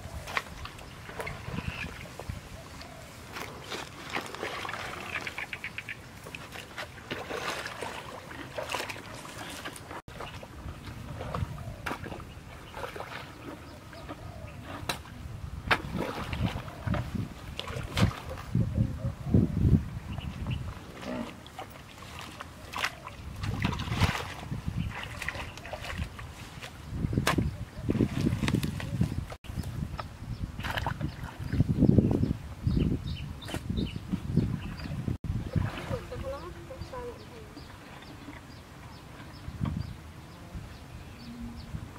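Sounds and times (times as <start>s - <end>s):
water sloshing and splashing: 0.0s - 18.7s, 20.0s - 29.4s, 30.5s - 31.8s, 34.4s - 39.8s
hoe scraping through mud: 3.3s - 5.5s, 6.3s - 10.0s.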